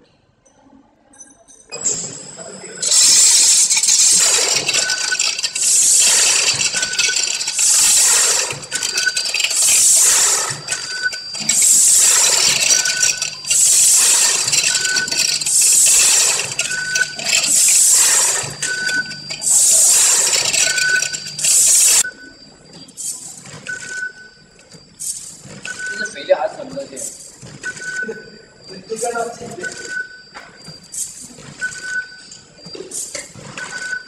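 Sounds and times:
packaging machine running: 0:02.8 - 0:22.1.

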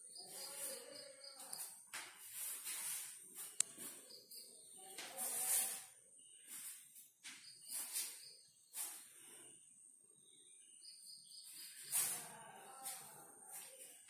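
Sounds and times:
bare feet swishing on floor: 0:01.9 - 0:04.0.

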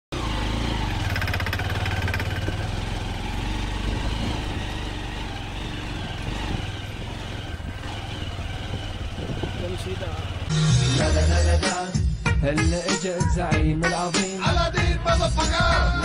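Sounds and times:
motorcycle engine running: 0:00.1 - 0:11.6.

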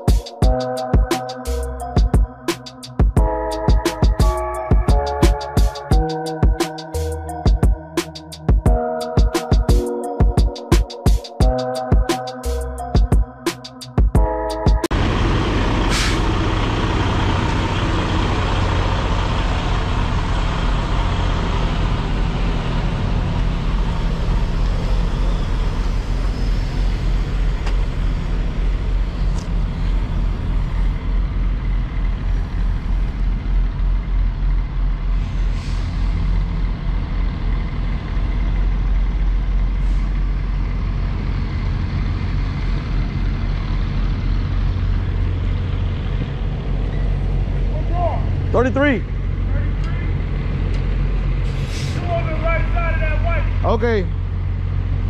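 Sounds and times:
diesel truck engine running: 0:11.3 - 0:55.0
air brake hiss: 0:15.9 - 0:16.3, 0:35.1 - 0:36.2, 0:39.8 - 0:40.2, 0:51.4 - 0:52.1.

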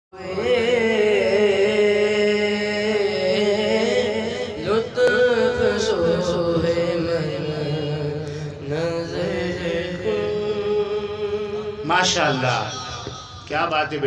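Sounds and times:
person chanting melodically: 0:00.1 - 0:13.5.

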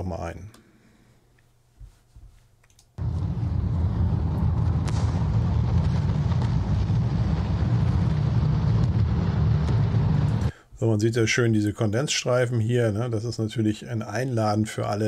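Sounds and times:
propeller aircraft engines droning: 0:03.0 - 0:10.5
faint flak burst thuds: 0:04.5 - 0:10.5.

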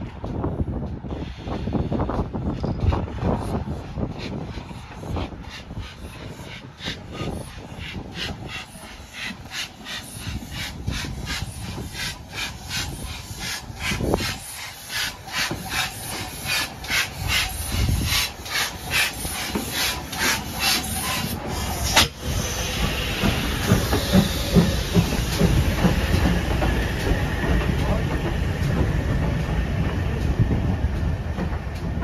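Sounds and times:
steam locomotive chuffing: 0:01.0 - 0:32.0
steam hissing: 0:03.2 - 0:31.0.

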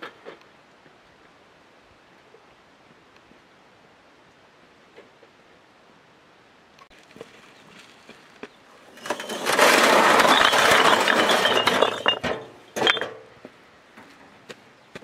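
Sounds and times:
clay bricks clattering: 0:08.1 - 0:13.6.

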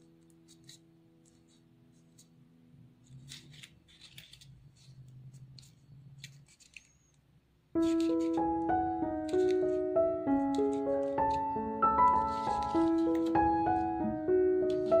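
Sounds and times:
paper rustling and crinkling: 0:00.0 - 0:02.4, 0:03.0 - 0:07.0, 0:07.8 - 0:15.0
piano music: 0:07.8 - 0:15.0.

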